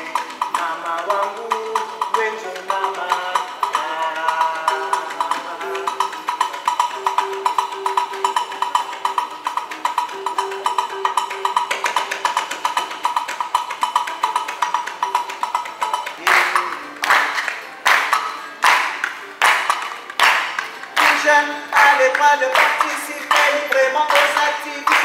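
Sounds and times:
voices singing: 0.0s - 9.2s, 15.9s - 19.0s, 20.3s - 25.0s
hand claps: 0.0s - 25.0s
hand percussion knocks: 0.0s - 25.0s
plucked guitar: 0.0s - 25.0s.

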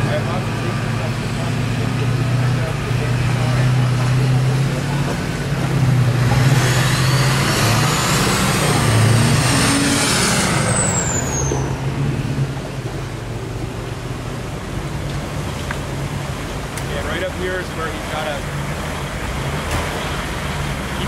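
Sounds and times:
truck engine working hard: 0.0s - 21.0s
high whine: 5.4s - 13.9s.

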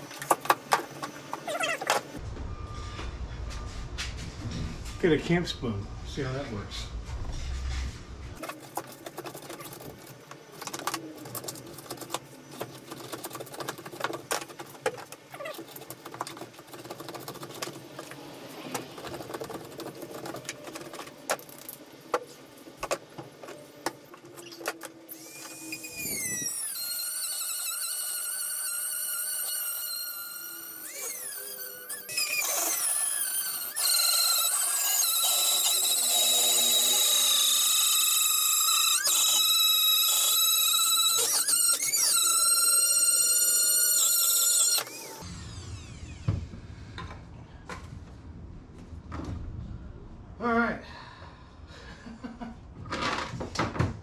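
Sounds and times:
high wavering squeaking: 24.3s - 46.2s.

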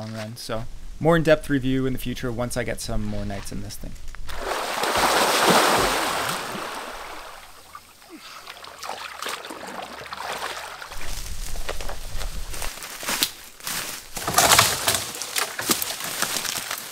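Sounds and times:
person splashing into water: 4.3s - 11.2s
water sloshing and dripping: 4.3s - 11.3s.

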